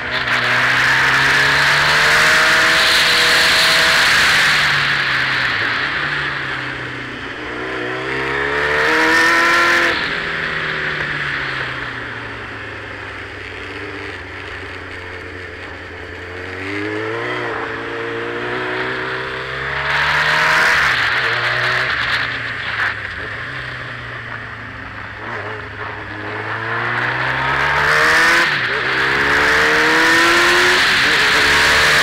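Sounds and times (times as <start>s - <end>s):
motorcycle engine accelerating: 0.0s - 32.0s.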